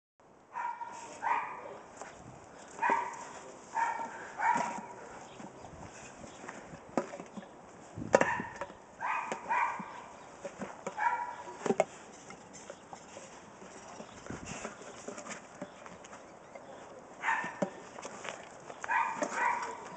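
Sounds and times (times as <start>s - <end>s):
dog yipping: 8.2s - 10.1s, 11.0s - 11.5s, 17.2s - 17.6s, 18.9s - 19.9s.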